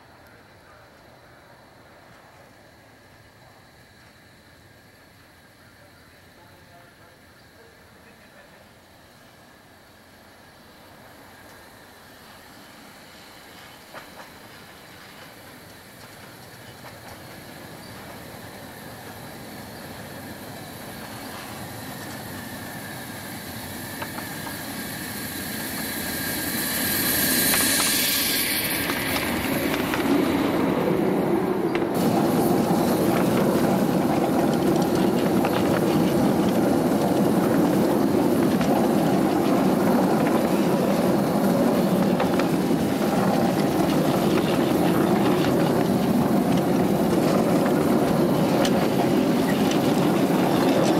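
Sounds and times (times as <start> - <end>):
steam hiss: 0.0 - 50.9
steam locomotive passing: 0.0 - 50.9.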